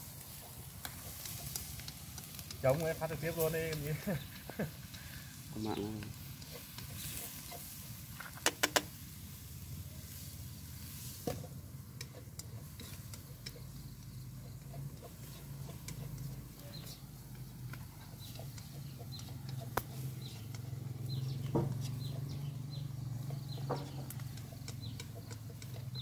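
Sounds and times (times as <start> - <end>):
food sizzling in a pan: 0.0 - 26.0
chopsticks clicking: 0.8 - 2.6, 8.4 - 8.9, 23.2 - 26.0.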